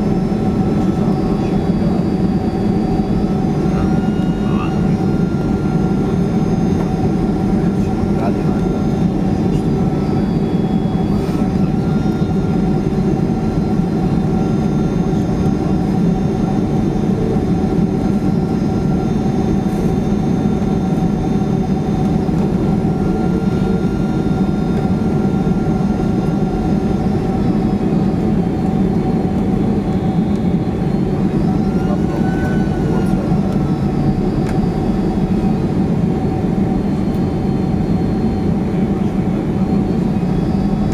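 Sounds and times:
jet engine rumble in cabin: 0.0 - 40.9
whining engine tones: 0.0 - 40.9.

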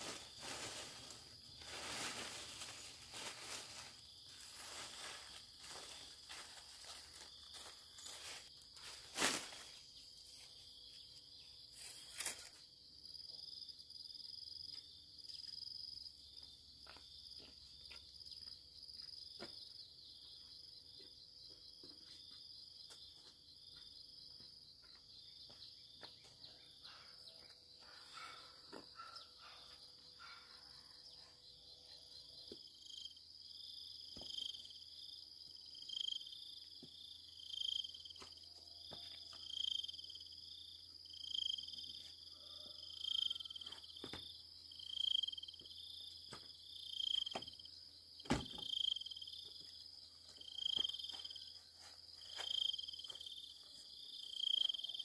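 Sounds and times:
crickets and insects chirping: 0.0 - 55.0.

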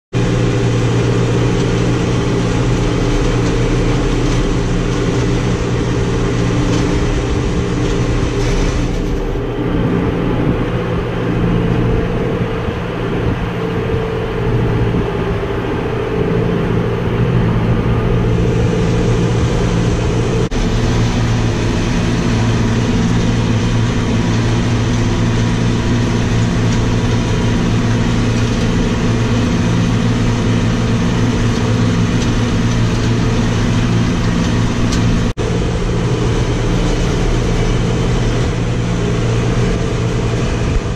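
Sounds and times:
tractor diesel engine running: 0.1 - 40.9.

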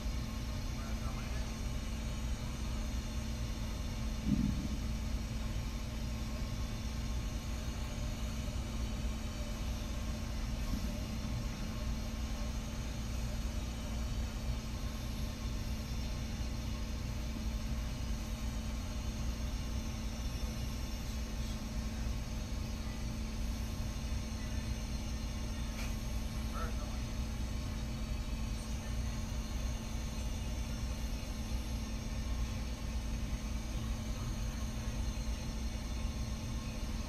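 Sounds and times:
machine hum with low rumble: 0.0 - 37.0.

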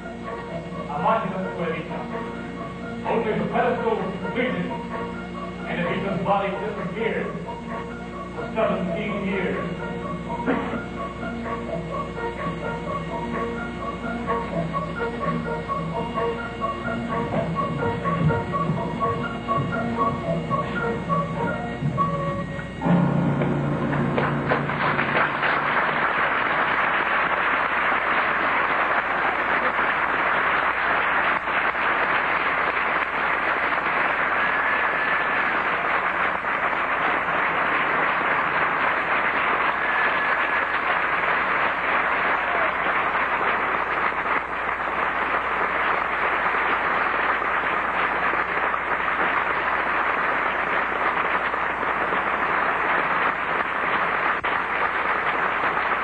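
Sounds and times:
audience applauding: 23.4 - 56.0.

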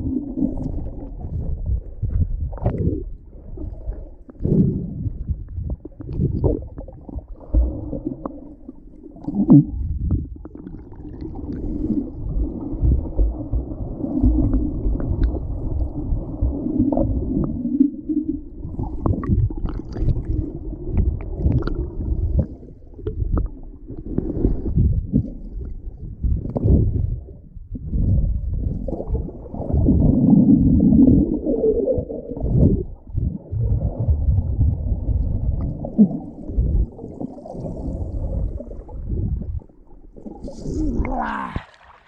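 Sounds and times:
muffled underwater rumble: 0.0 - 42.0
water splashes: 35.1 - 42.0.

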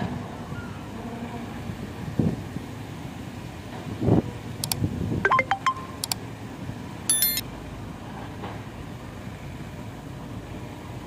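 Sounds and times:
mouse clicks: 4.6 - 6.2, 7.1 - 7.4
bright chime: 7.1 - 7.4.

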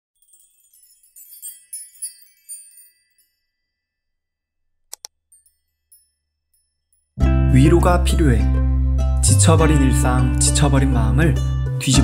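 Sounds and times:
high tinkling chimes: 0.1 - 4.6, 5.2 - 7.2
short clicks: 4.9 - 5.2.

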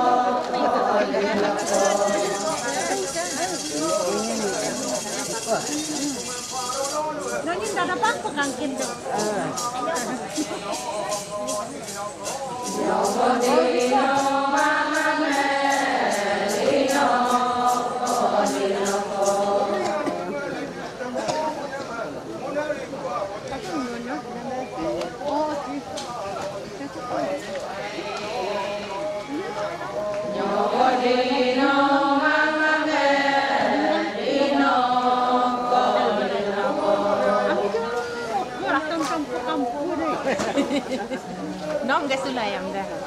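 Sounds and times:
women singing chant together: 0.0 - 4.6, 8.0 - 20.7, 27.6 - 39.6
high rattling beat: 1.4 - 20.2.

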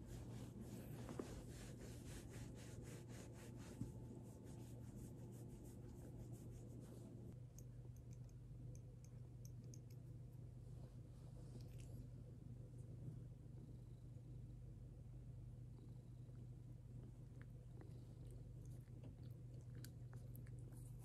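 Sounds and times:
hand stroking cat fur: 0.0 - 7.4
light ticks: 7.5 - 10.1.

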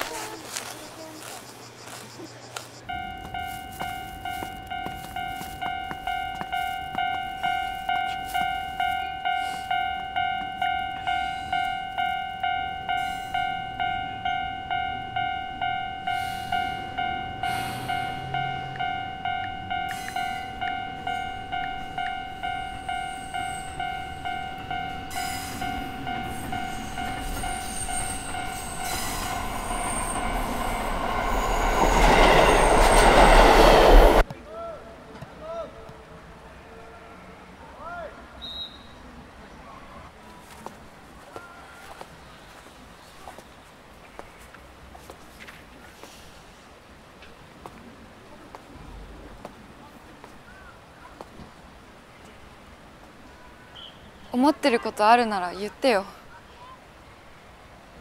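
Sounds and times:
train passing: 0.0 - 34.3
level crossing bell dinging: 2.9 - 32.3.

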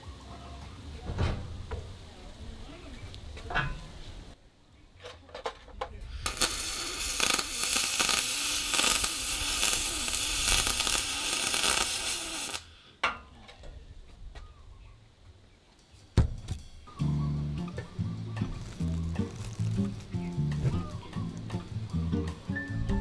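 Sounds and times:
welding arc crackling hiss: 6.1 - 12.8, 17.4 - 22.3.

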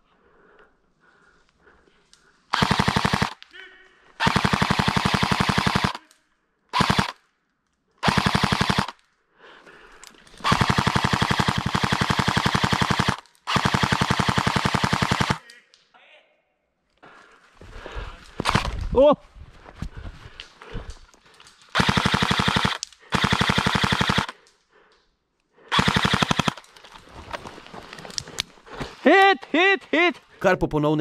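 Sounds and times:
airsoft rifle automatic bursts: 2.5 - 3.4, 4.2 - 6.0, 6.7 - 7.2, 8.0 - 9.0, 10.4 - 15.4, 18.4 - 18.7, 21.7 - 24.4, 25.7 - 26.7.

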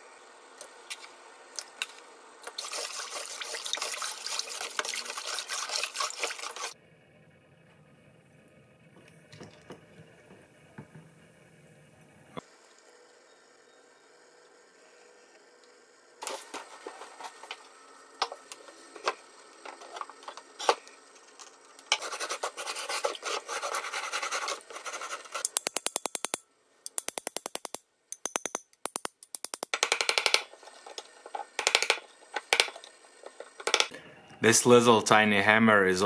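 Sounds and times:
brush scrubbing rusty iron: 2.5 - 6.8.

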